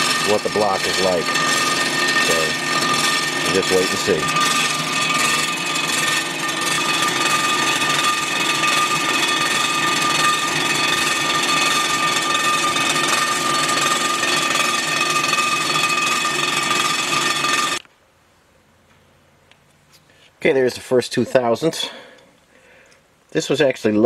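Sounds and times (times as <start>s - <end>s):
cutter head milling metal: 0.0s - 17.8s.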